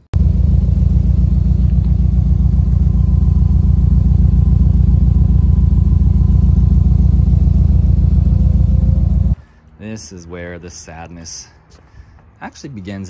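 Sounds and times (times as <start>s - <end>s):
loud low car exhaust idling: 0.2s - 9.4s.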